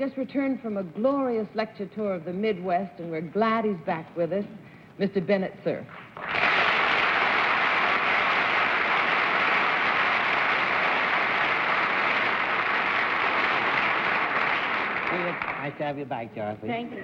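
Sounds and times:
audience applauding: 0:06.1 - 0:16.0.

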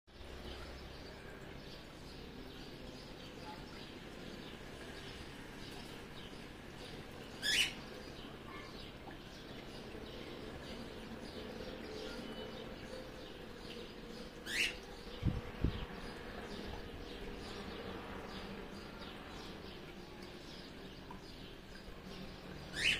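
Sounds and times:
small birds chirping: 0:00.1 - 0:22.9
sweeping bird calls: 0:07.3 - 0:10.8, 0:11.6 - 0:17.6, 0:22.6 - 0:22.9.

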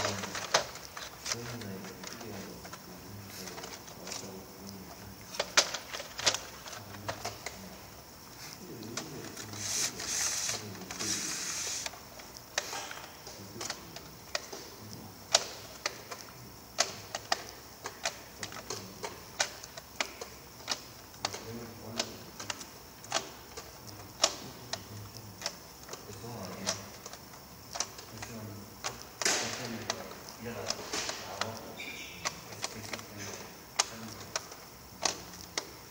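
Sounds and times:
plastic trays clacking: 0:00.0 - 0:04.4, 0:05.2 - 0:07.6
hiss: 0:08.4 - 0:12.0.

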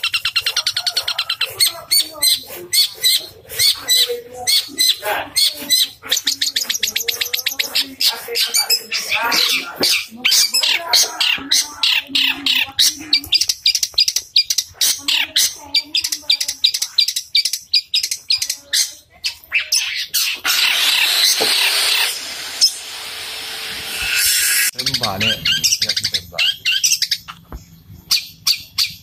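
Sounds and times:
bird chirping: 0:00.0 - 0:29.0.

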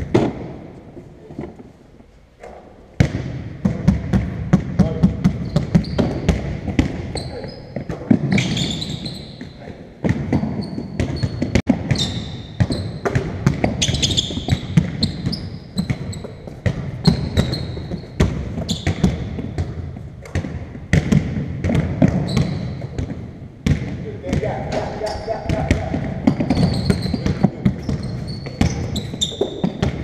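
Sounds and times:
basketballs bouncing on wooden floor: 0:00.0 - 0:01.6, 0:03.0 - 0:30.0
trainers squeaking: 0:07.1 - 0:09.7, 0:24.8 - 0:29.8.

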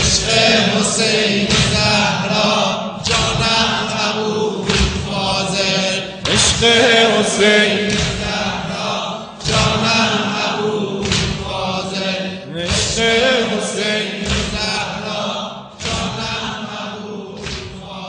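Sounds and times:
men chanting in unison: 0:00.0 - 0:18.0.

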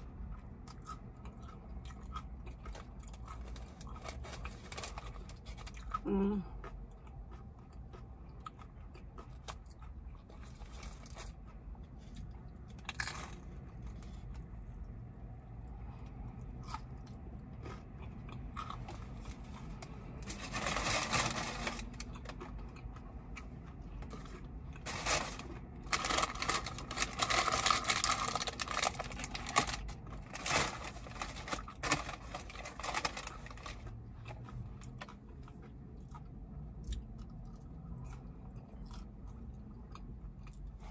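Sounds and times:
chewing food: 0:00.2 - 0:20.3, 0:33.0 - 0:40.9
crunching: 0:16.6 - 0:36.2.

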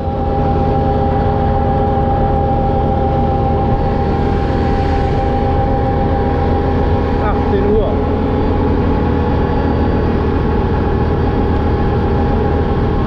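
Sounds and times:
quad engine droning: 0:00.0 - 0:13.0.

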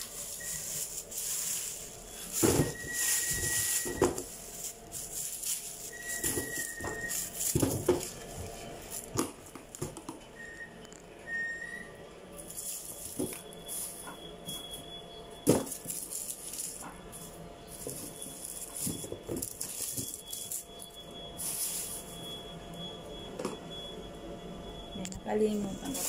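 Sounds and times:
plastic bag crinkling: 0:00.0 - 0:09.8, 0:12.4 - 0:14.1, 0:15.5 - 0:22.3, 0:25.8 - 0:26.0
thin high whistle-like tone: 0:00.1 - 0:04.3, 0:05.5 - 0:07.5, 0:10.3 - 0:26.0.

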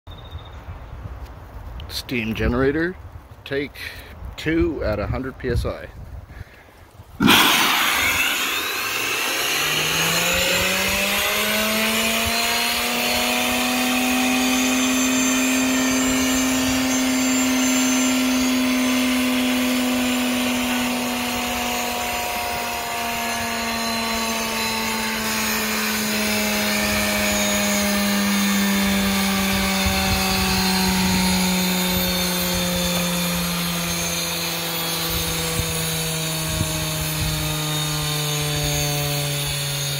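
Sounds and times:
turbine whine: 0:06.4 - 0:39.9
steam hissing: 0:07.2 - 0:11.3.

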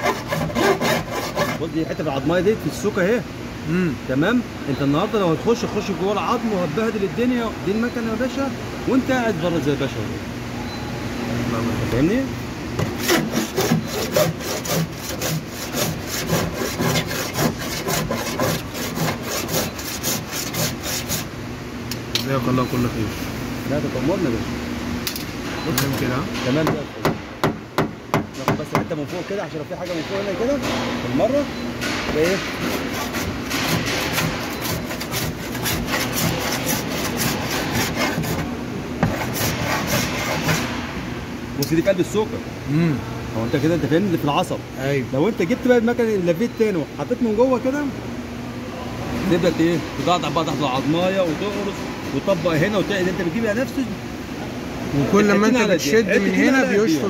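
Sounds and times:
abrasive rasping over metal: 0:00.0 - 0:02.1, 0:12.8 - 0:21.3, 0:32.2 - 0:40.8.

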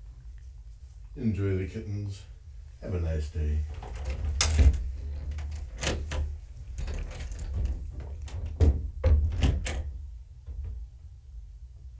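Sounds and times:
knocks and thuds: 0:06.8 - 0:11.1.

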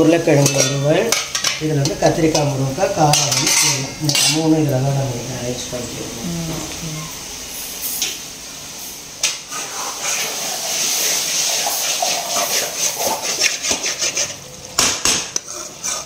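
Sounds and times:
pan hissing: 0:00.0 - 0:14.5
ladle scraping pan: 0:00.3 - 0:04.8, 0:09.2 - 0:14.5, 0:15.3 - 0:16.0.

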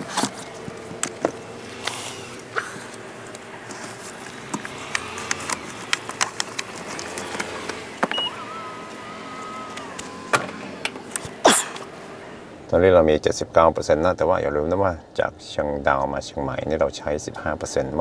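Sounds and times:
power tailgate motor whine: 0:04.3 - 0:12.5
short beep: 0:08.0 - 0:08.4.

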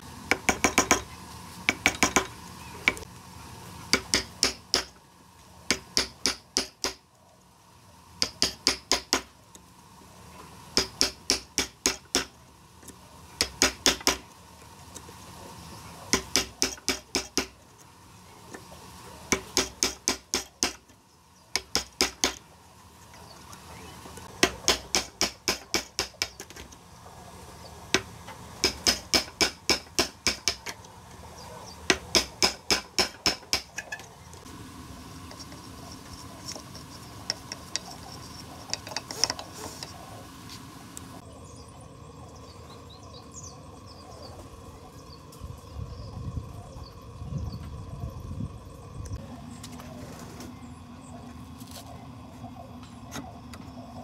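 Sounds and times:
hammer striking a chisel: 0:00.3 - 0:01.1, 0:01.7 - 0:02.3, 0:03.9 - 0:05.0, 0:05.7 - 0:07.0, 0:08.2 - 0:09.3, 0:10.8 - 0:12.4, 0:13.4 - 0:14.2, 0:16.1 - 0:17.6, 0:19.3 - 0:20.8, 0:21.6 - 0:22.4, 0:24.4 - 0:26.6, 0:28.0 - 0:30.8, 0:31.9 - 0:34.0.

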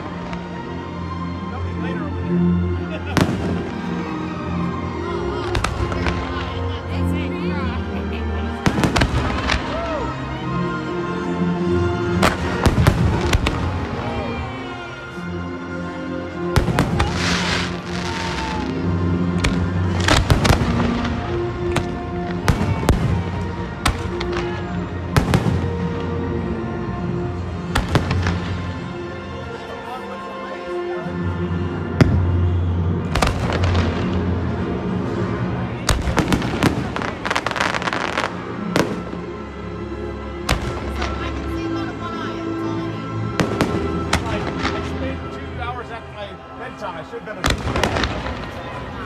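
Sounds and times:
music: 0:00.0 - 0:49.0
fireworks crackling: 0:05.2 - 0:10.2, 0:12.1 - 0:15.0, 0:16.6 - 0:26.3, 0:27.6 - 0:28.9, 0:33.0 - 0:39.3, 0:40.5 - 0:42.3, 0:43.3 - 0:45.5, 0:47.4 - 0:49.0
fireworks bangs: 0:08.6 - 0:09.8, 0:12.2 - 0:14.1, 0:16.6 - 0:26.1, 0:27.7 - 0:28.7, 0:33.0 - 0:39.2, 0:43.3 - 0:45.0, 0:47.4 - 0:49.0.

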